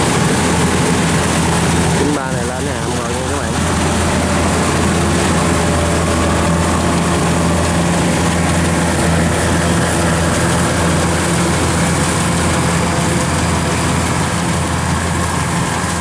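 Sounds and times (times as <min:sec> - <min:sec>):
diesel engine droning: 0:00.0 - 0:16.0.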